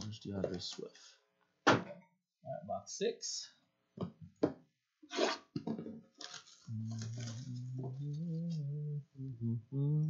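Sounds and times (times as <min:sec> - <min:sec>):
plastic wrapping tearing and rustling: 0:06.2 - 0:07.7.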